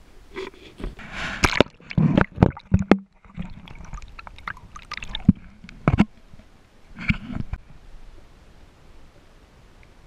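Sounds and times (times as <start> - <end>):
rush of water: 0.4 - 10.0
water splashing and gurgling: 1.0 - 7.6.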